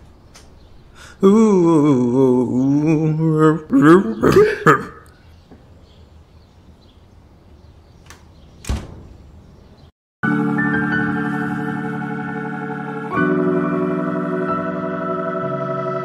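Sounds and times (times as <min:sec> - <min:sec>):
person humming: 0:01.0 - 0:05.1
door shutting thump: 0:08.1 - 0:09.3.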